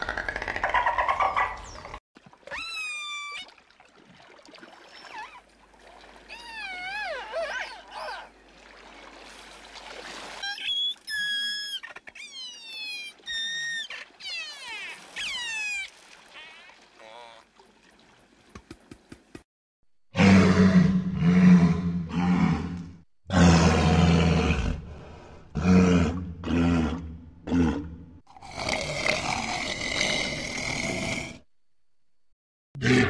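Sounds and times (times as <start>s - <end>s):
dolphin sound: 6.3s - 8.3s, 10.4s - 17.4s
orca whistles and pulsed calls: 10.4s - 14.5s.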